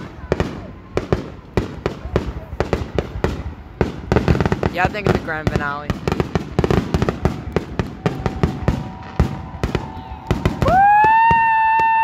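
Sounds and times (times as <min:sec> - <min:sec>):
fireworks bangs and crackles: 0:00.0 - 0:12.0
person cheering: 0:08.0 - 0:12.0.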